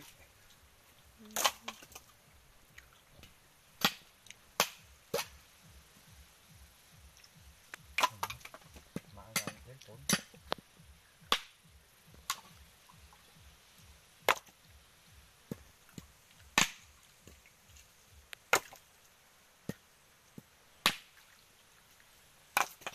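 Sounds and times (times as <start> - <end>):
machete whacking coconut shells: 3.8 - 5.4, 11.3 - 11.6, 14.3 - 14.6, 16.6 - 16.8, 18.5 - 18.8, 20.8 - 21.1.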